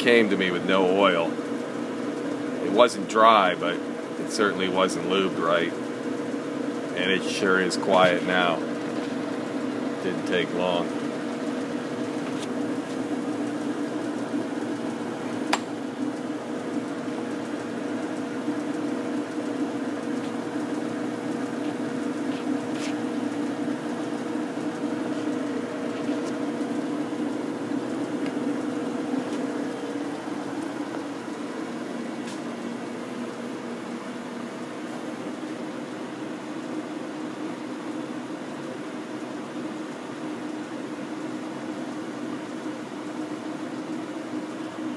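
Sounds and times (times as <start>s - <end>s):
lathe gearing whirring: 0.0s - 44.9s
sharp click: 15.5s - 15.8s.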